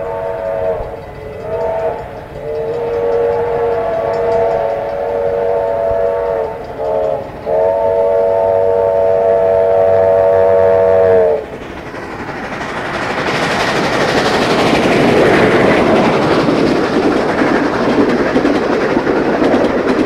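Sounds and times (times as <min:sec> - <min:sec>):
steam locomotive chime whistle: 0:00.0 - 0:11.6
low rumble of train: 0:00.0 - 0:20.0.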